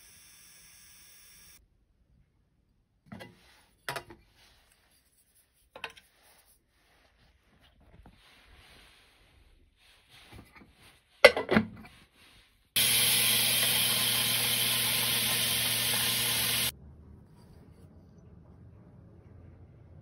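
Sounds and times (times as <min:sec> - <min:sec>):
pin tumbler motor humming: 0:00.0 - 0:01.6, 0:12.8 - 0:16.7
steel pins and water hissing: 0:12.8 - 0:16.7.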